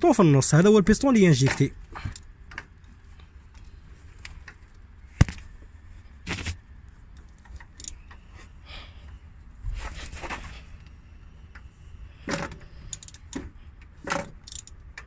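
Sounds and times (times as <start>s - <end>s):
hand tools clicking on metal: 7.2s - 8.2s, 12.3s - 13.5s, 14.1s - 15.0s.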